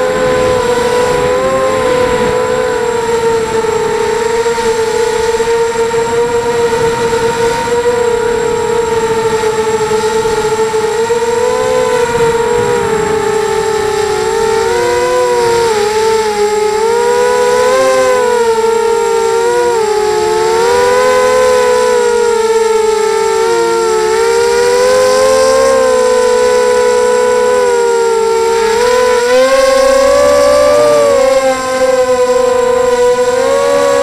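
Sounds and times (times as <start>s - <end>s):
drone motors whining: 0.0s - 34.0s.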